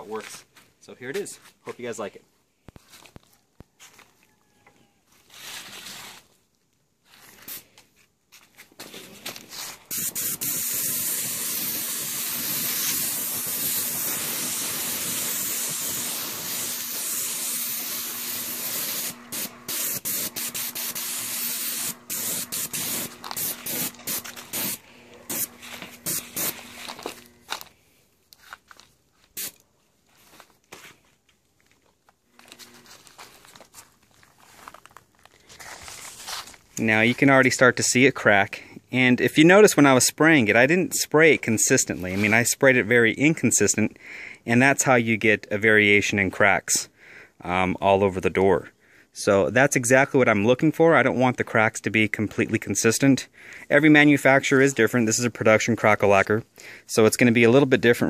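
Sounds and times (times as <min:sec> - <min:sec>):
faint steady hum: 0:09.2 - 0:37.0
spray gun hissing: 0:09.6 - 0:27.4.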